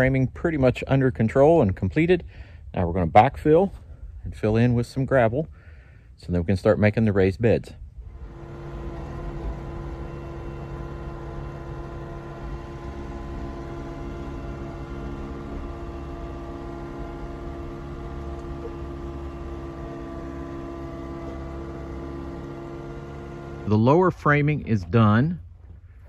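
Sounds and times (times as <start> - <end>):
loader engine hum: 7.8 - 26.0.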